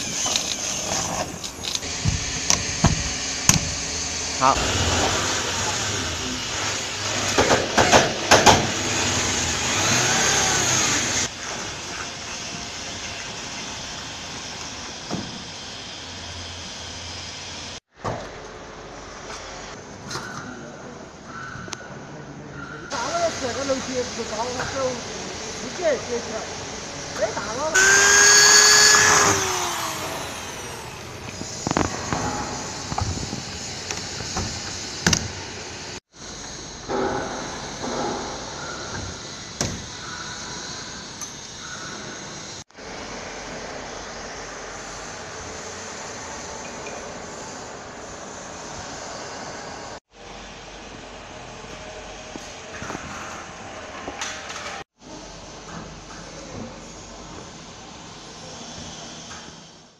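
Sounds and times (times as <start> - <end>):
electric drill running: 0.0 - 7.2, 8.7 - 11.3, 27.6 - 35.0
sharp knocks: 2.0 - 3.8.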